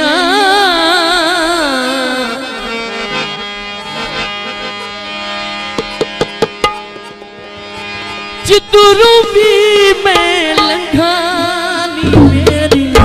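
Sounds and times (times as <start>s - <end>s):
steady held instrumental notes: 1.9s - 13.0s
hand drum strokes: 5.7s - 7.9s.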